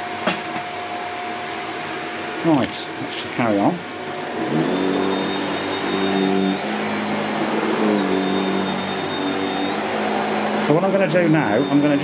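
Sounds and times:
vacuum cleaner running on carpet: 0:00.0 - 0:12.0.

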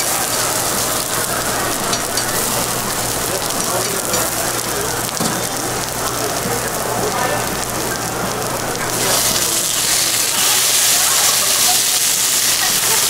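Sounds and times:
onions sizzling on a griddle: 0:00.0 - 0:13.0.

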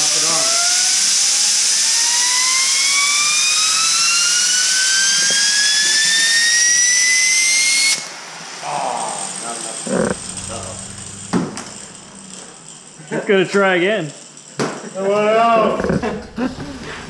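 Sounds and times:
bearing whine rising in pitch: 0:09.9 - 0:13.2.

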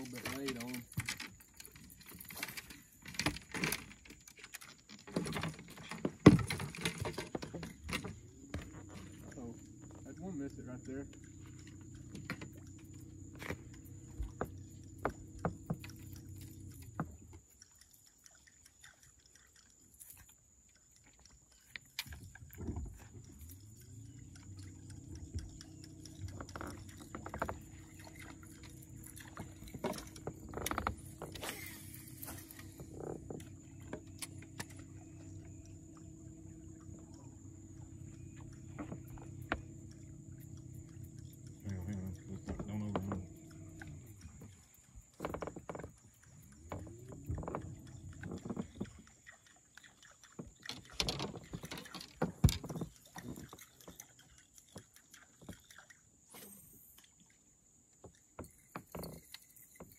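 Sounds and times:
electric trolling motor humming: 0:05.2 - 0:18.3, 0:19.8 - 0:49.7
scattered clicks and knocks: 0:24.4 - 0:31.4, 0:41.6 - 0:49.0, 0:50.4 - 0:54.0.

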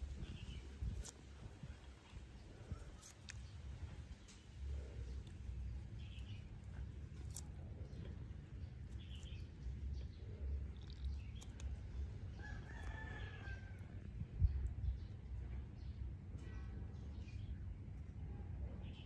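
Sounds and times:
steady low rumble: 0:00.0 - 0:19.0
rooster crowing: 0:12.4 - 0:14.0.

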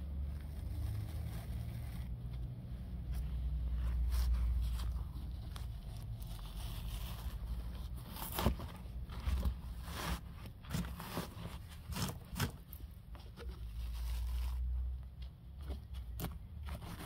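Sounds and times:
rusted metal crunching and scraping: 0:05.6 - 0:14.6.

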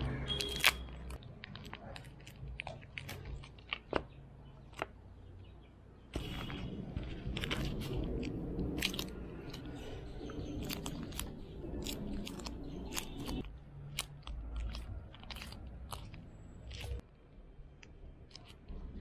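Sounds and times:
rubber gloves crinkling: 0:00.0 - 0:17.1
putty squishing: 0:00.0 - 0:19.0.

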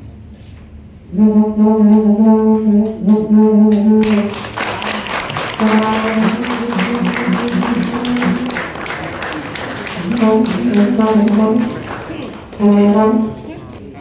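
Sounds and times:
applause: 0:04.0 - 0:12.8.

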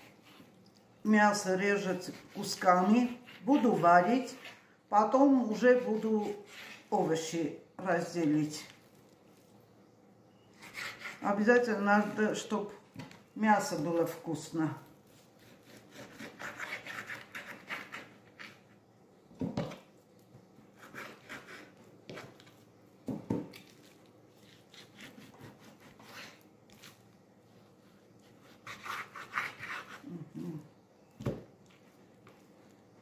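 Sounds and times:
knife sawing through meat: 0:01.8 - 0:04.6, 0:05.4 - 0:07.0, 0:10.6 - 0:11.4, 0:15.3 - 0:18.6, 0:20.8 - 0:21.7, 0:28.4 - 0:30.1.

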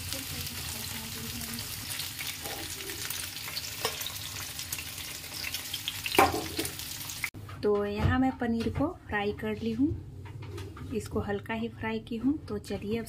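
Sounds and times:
frying in hot oil sizzle: 0:00.0 - 0:07.4.

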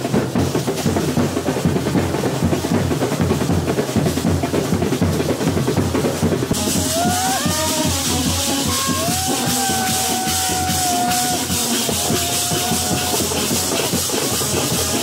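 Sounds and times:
fast dense drumming: 0:00.0 - 0:15.0
bright hiss: 0:06.6 - 0:15.0.

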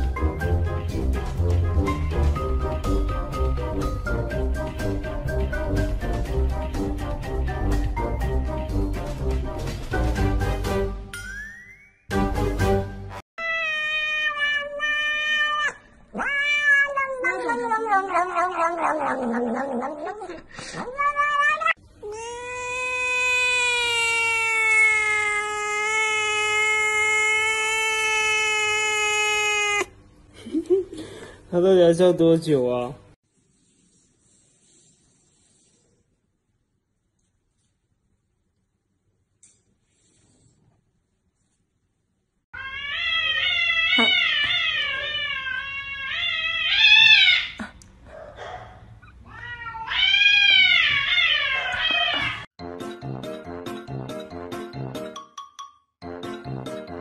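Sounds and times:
cat mewing: 0:13.4 - 0:29.9, 0:42.6 - 0:47.6, 0:49.2 - 0:52.5
cat yowling: 0:13.4 - 0:29.9, 0:42.6 - 0:47.6, 0:49.2 - 0:52.5.

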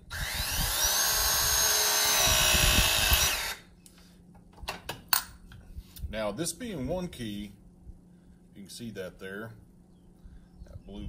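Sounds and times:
press tool motor whine: 0:00.0 - 0:03.6.

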